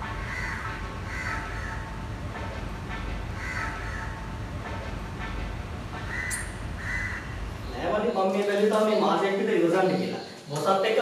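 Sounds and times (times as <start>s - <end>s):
crows cawing: 0.0s - 2.0s, 3.4s - 4.3s, 6.0s - 7.5s
city background rumble: 0.0s - 10.8s.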